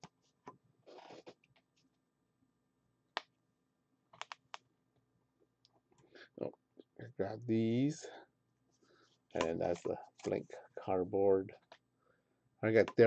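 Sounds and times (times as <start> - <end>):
soft rustle: 0.2 - 1.4.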